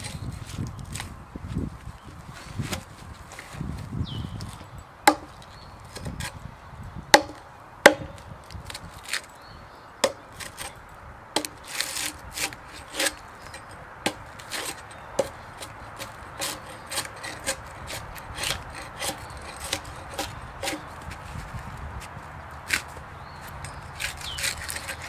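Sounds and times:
knife chopping wood: 0:05.1 - 0:05.4, 0:07.1 - 0:08.3, 0:11.4 - 0:13.2, 0:14.0 - 0:20.9
bark being scraped: 0:10.0 - 0:10.8, 0:11.4 - 0:21.8, 0:22.7 - 0:25.0.

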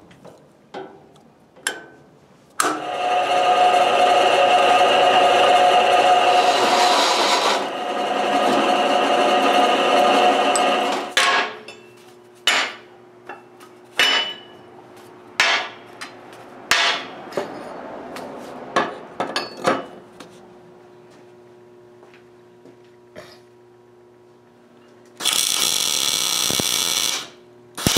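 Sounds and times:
drill press cutting steel: 0:02.6 - 0:11.2, 0:25.2 - 0:27.9.

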